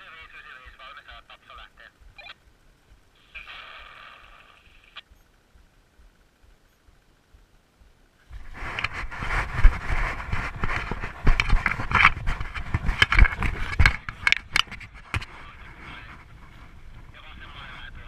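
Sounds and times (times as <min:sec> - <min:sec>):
running footsteps crunching in snow: 0:08.3 - 0:17.0
wind rumbling on microphone: 0:08.3 - 0:18.0.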